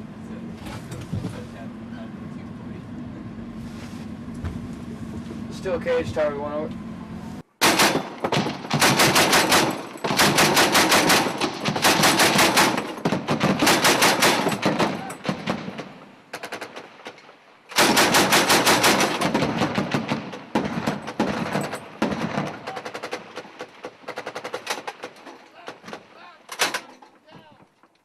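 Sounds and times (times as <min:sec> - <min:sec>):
automatic machine-gun fire: 0:07.6 - 0:25.1.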